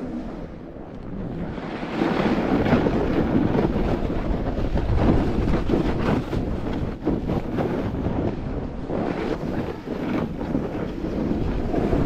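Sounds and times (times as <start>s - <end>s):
snowboard scraping over snow: 0.0s - 12.0s
wind on microphone: 0.0s - 12.0s.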